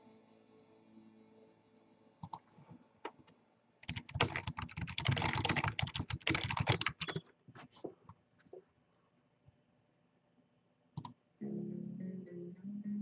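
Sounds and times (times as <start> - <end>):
typing on computer keyboard: 3.8 - 7.3.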